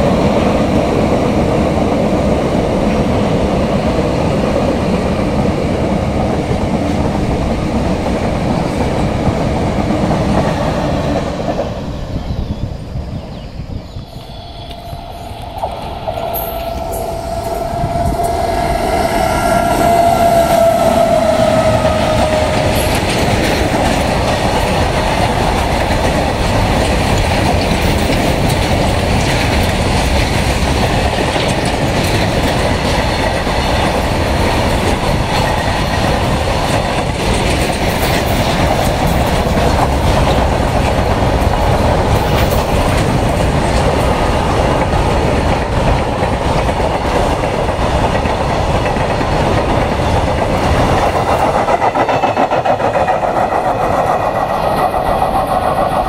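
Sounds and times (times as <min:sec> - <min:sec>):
locomotive horn: 0:14.5 - 0:23.0
train wagons clattering over rail joints: 0:20.0 - 0:56.0.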